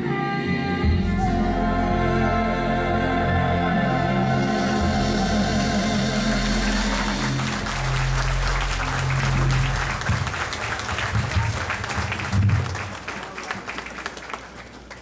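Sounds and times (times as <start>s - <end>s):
held musical chord: 1.2s - 10.7s
congregation applause: 6.2s - 15.0s.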